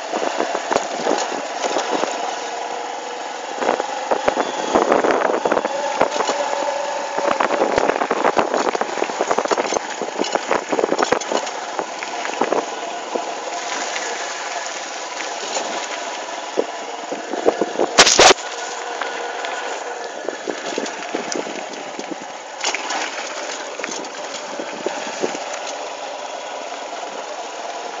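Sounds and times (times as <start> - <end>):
motorcycle engine running: 0.0 - 28.0.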